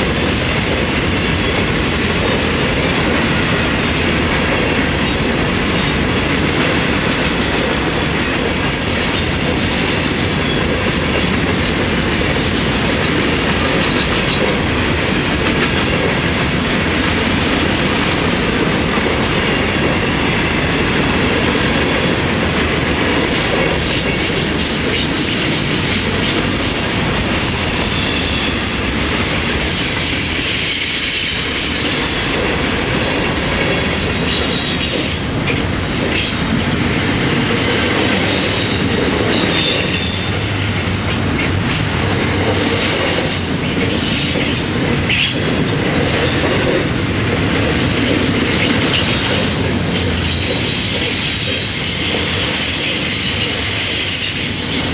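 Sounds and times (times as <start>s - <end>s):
freight train rumbling past: 0.0s - 54.9s
high wheel squeals: 6.3s - 9.5s, 27.9s - 32.5s, 50.2s - 54.7s.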